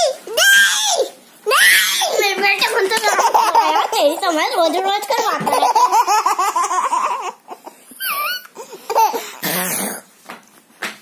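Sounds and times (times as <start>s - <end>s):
toddler high-pitched squeal: 0.0s - 2.2s, 8.0s - 8.5s
toddler laughing: 0.0s - 4.4s, 5.1s - 9.4s.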